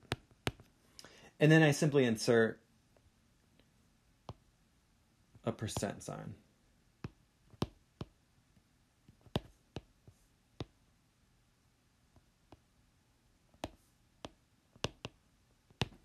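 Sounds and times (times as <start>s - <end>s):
pen clicking on writing surface: 0.0s - 0.7s, 9.1s - 9.9s, 13.5s - 16.0s.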